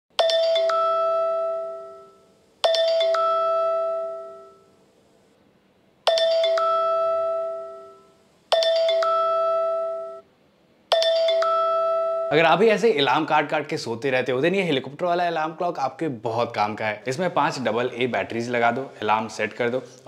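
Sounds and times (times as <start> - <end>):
two-note ding-dong alarm chime: 0.2 - 4.7, 6.1 - 10.2, 10.9 - 12.5.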